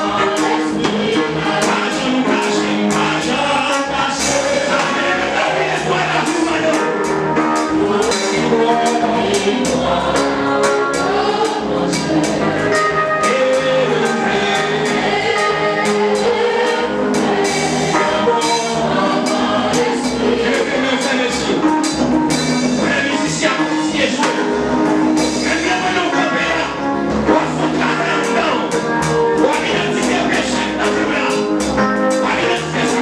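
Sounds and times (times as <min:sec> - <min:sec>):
man singing into microphone: 0:00.0 - 0:09.9, 0:12.8 - 0:14.9, 0:20.3 - 0:21.6, 0:22.8 - 0:24.4, 0:25.4 - 0:28.7, 0:29.4 - 0:33.0
voices singing: 0:00.0 - 0:22.0, 0:22.7 - 0:33.0
percussion beat: 0:00.0 - 0:26.6.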